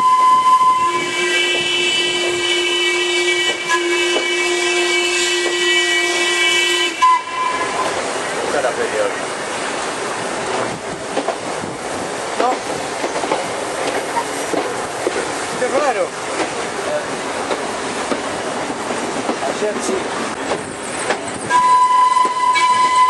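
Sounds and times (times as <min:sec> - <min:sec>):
steam locomotive whistle: 0:00.0 - 0:08.0, 0:21.5 - 0:23.0
rush of moving train: 0:00.0 - 0:23.0.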